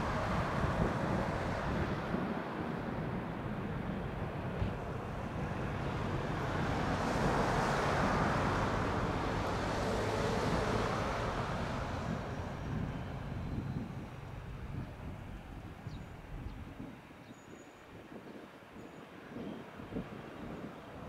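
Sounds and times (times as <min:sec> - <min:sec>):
road vehicle passing: 0:00.0 - 0:15.7
wind on microphone: 0:00.0 - 0:21.0.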